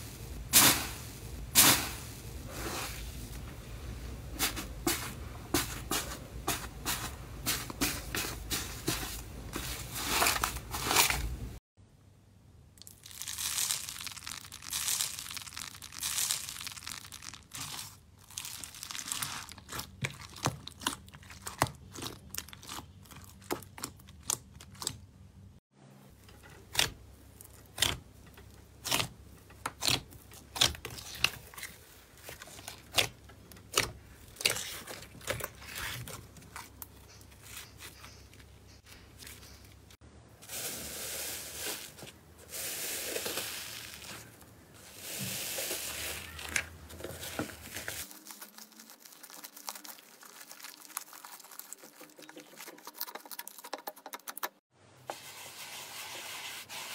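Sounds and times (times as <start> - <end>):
foam bead slime crunching: 12.8 - 25.0, 40.5 - 53.5
slime crackling and popping: 12.8 - 25.0, 48.0 - 53.5.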